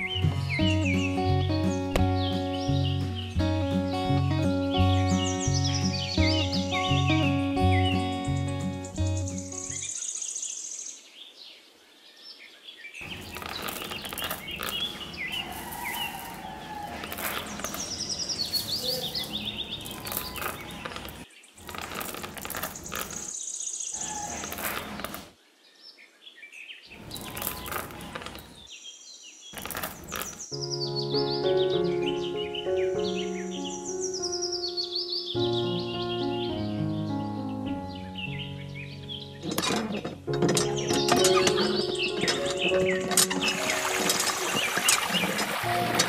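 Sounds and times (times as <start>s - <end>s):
birds chirping: 0.0s - 46.0s
water running into trough: 39.4s - 46.0s.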